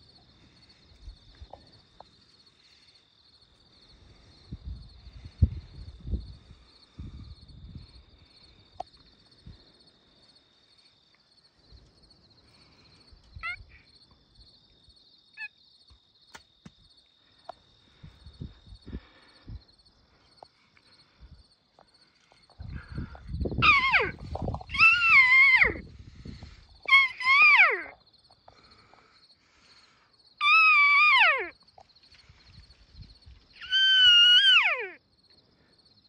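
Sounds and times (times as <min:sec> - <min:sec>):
insect trilling: 0:12.6 - 0:14.0, 0:22.6 - 0:35.0
high wavering animal cry: 0:13.4 - 0:13.8, 0:23.6 - 0:25.9, 0:26.8 - 0:28.0, 0:30.4 - 0:31.6, 0:33.6 - 0:35.0.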